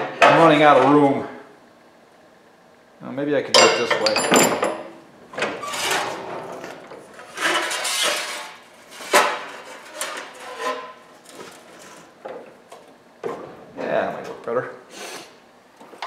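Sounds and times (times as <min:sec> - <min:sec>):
sheet steel rattling and scraping: 0:05.4 - 0:12.2.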